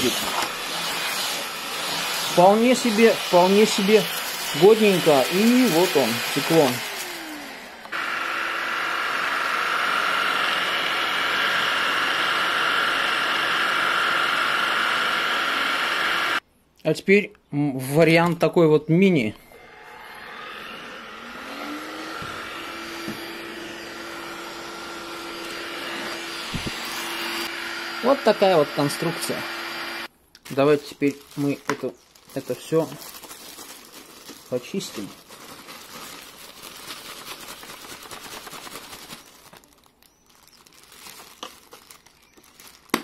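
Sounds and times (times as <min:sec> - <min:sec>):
plastic bag crinkling: 0:00.0 - 0:08.0, 0:30.4 - 0:43.0
stick vacuum cleaner whine: 0:00.0 - 0:16.4, 0:19.4 - 0:30.1.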